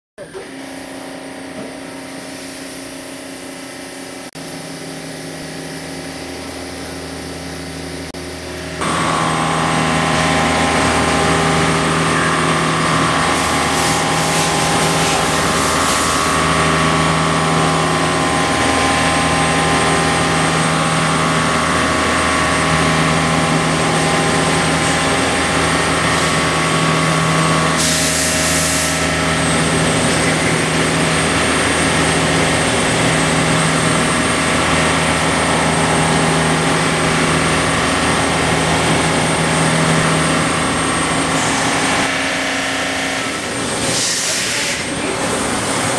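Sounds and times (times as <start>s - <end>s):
machine spindle hum: 0.2s - 45.9s
coolant wash: 0.4s - 45.9s
drill cutting whine: 8.7s - 45.9s.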